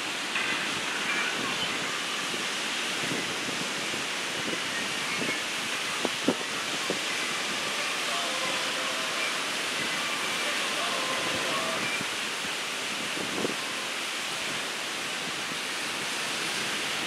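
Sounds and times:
ocean surf breaking: 0.0 - 17.0.

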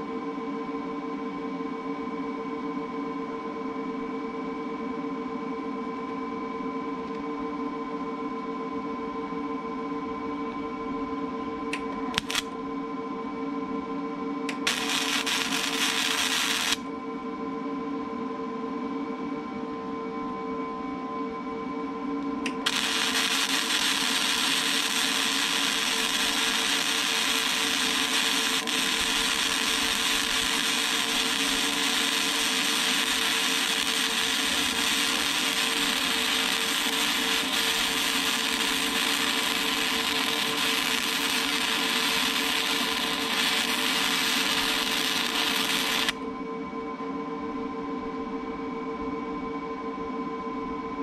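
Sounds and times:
welder arc crackling hiss: 11.8 - 12.5, 14.5 - 16.8, 22.5 - 46.2.

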